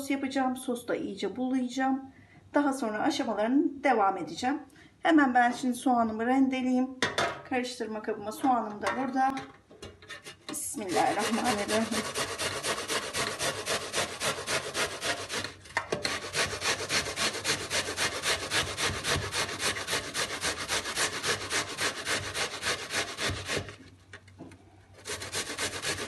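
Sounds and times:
onion grated on metal grater: 10.1 - 23.9, 25.0 - 26.0.

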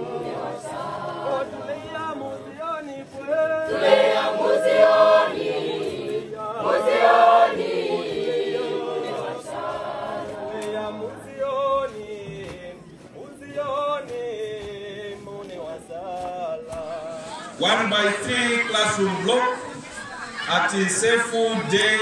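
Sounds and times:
student choir singing: 0.0 - 2.6, 3.3 - 12.5, 16.8 - 22.0.

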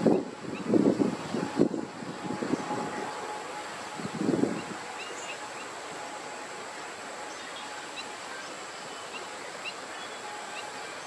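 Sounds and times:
steady wash of noise: 0.0 - 11.0.

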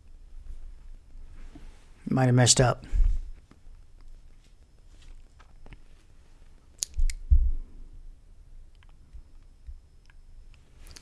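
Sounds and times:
dull low thumps: 7.2 - 7.7.

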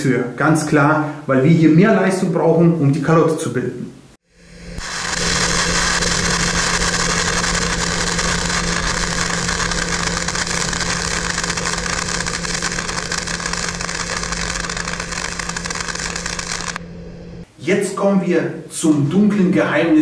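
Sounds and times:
welding arc buzzing hum: 4.2 - 17.6.

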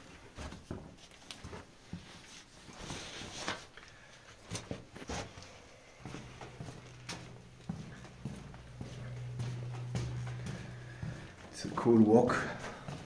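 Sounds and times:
footsteps on stone floor: 4.4 - 13.0.

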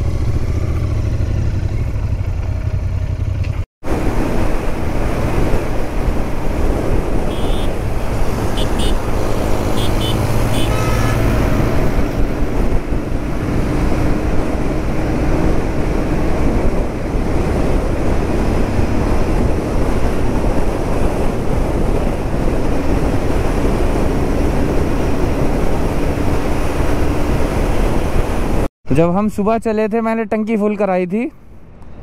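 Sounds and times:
motorcycle engine running: 0.0 - 3.6
wind rushing over microphone: 3.8 - 28.7.

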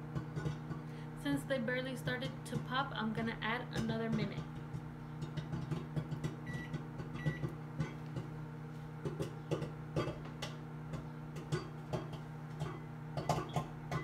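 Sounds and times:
microwave oven humming: 0.0 - 14.0
popcorn popping: 0.0 - 14.0
keypad beeps: 6.5 - 7.5.

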